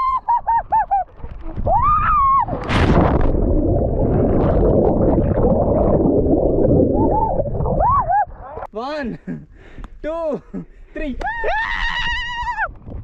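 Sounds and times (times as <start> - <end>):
underwater bubbling and rushing: 0.7 - 8.7
splash into water: 2.5 - 6.0.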